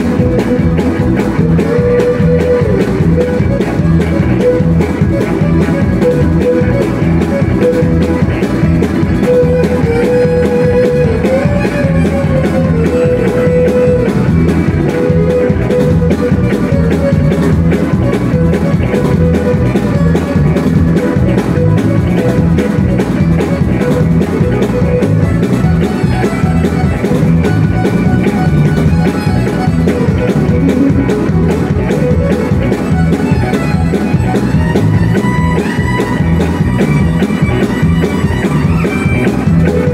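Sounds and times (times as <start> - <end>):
fiddle bowing melody: 0.0 - 39.9
guitar: 0.0 - 39.9
steady drum beat: 0.0 - 39.9.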